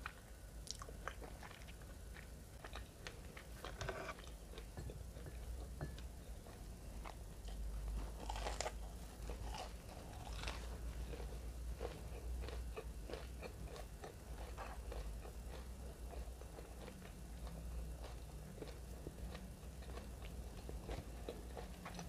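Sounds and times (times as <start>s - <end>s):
chewing with crackles: 0.0s - 22.0s
crunching fried fish: 8.0s - 22.0s.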